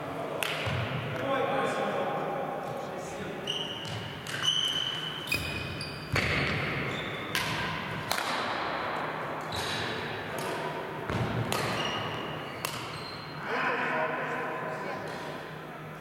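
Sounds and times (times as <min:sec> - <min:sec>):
shoes squeaking on court: 0:03.4 - 0:07.4, 0:11.1 - 0:13.4.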